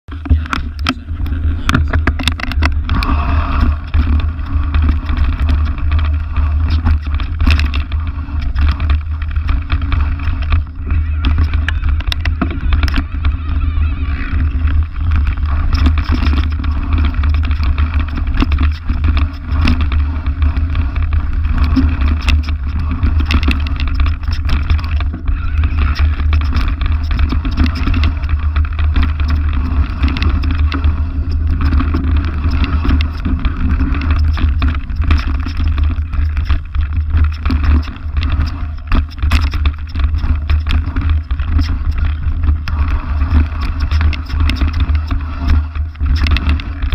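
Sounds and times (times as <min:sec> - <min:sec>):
bike tyres rumbling on dirt: 0:00.0 - 0:46.9
bike clicks and rattles: 0:00.1 - 0:46.9.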